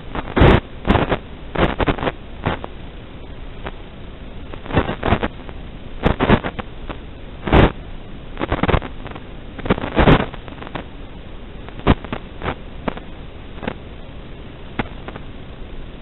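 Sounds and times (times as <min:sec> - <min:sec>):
radio static crackling: 0:00.0 - 0:16.0
static hiss: 0:00.0 - 0:16.0
sharp pops: 0:14.8 - 0:15.2.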